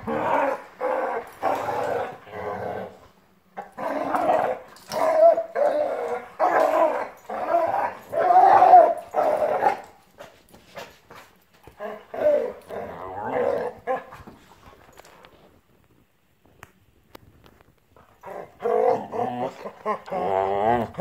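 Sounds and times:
dogs growling and snarling: 0.0 - 9.9, 11.7 - 14.3, 18.2 - 21.0.

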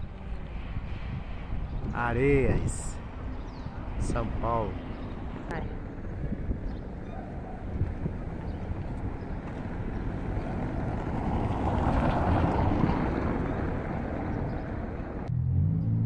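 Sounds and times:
car tyres rumbling on cobblestones: 4.9 - 16.0.

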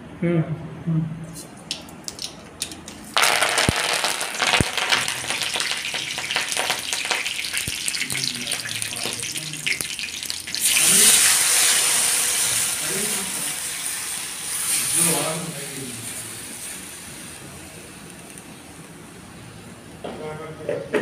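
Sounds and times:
mustard seeds crackling: 1.6 - 9.9
batter pouring into hot oil: 1.8 - 18.9
sizzling in hot oil: 2.1 - 18.8.

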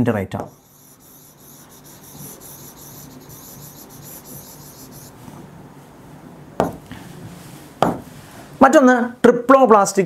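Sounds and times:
pen scratching on a board: 0.5 - 5.2.

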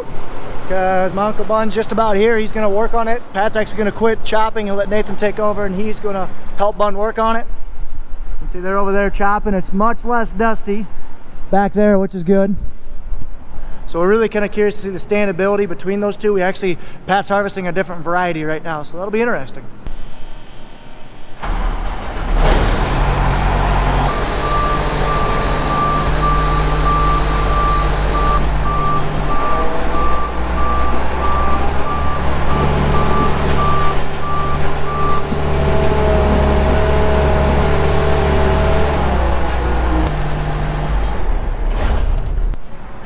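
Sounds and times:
combine engine running: 21.5 - 41.4
reversing alarm beeping: 23.5 - 37.6.

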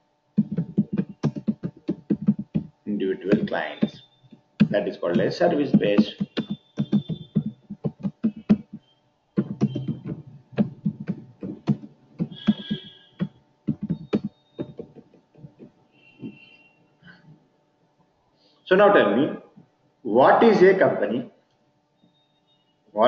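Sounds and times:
keyboard typing: 0.4 - 4.0, 4.6 - 8.8, 9.4 - 16.4.

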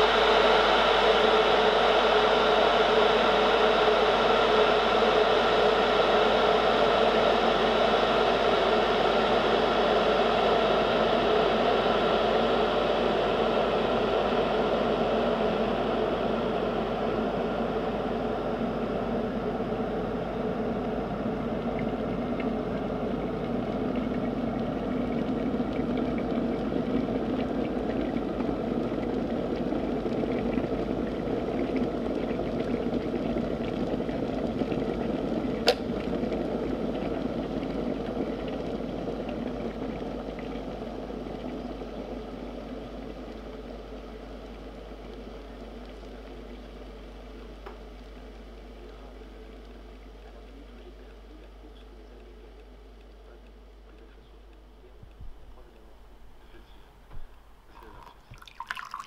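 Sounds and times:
water boiling: 0.0 - 59.0.

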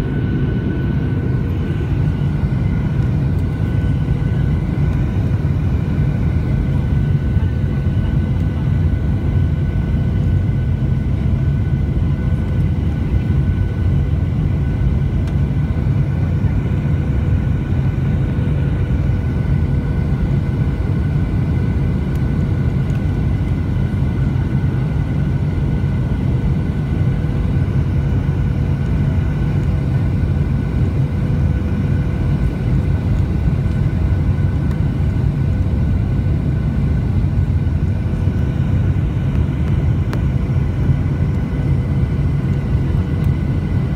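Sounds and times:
faint whining tones: 0.0 - 43.9
jet engine and airflow rumble: 0.0 - 43.9.

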